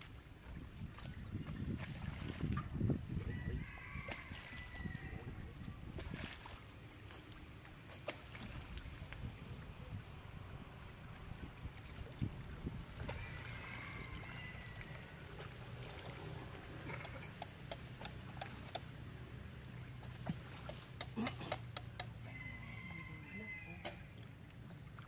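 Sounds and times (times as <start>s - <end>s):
wind rumbling on microphone: 0.0s - 6.6s, 8.3s - 17.2s.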